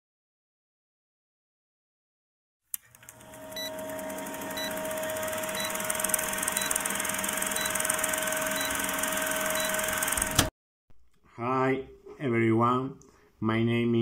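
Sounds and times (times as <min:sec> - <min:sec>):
film projector clattering: 0:02.8 - 0:10.5.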